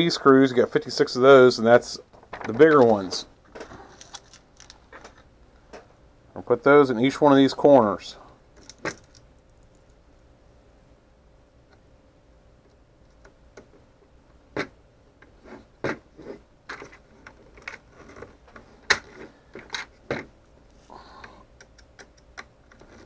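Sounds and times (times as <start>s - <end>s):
plastic parts clicking and knocking: 2.2s - 5.9s, 8.6s - 9.3s, 16.7s - 20.3s, 21.2s - 23.0s.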